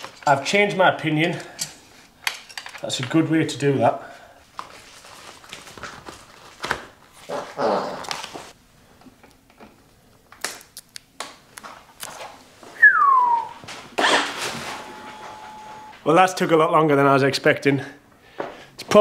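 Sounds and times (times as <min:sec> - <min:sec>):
clicks and knocks of bike parts: 0:01.3 - 0:03.2.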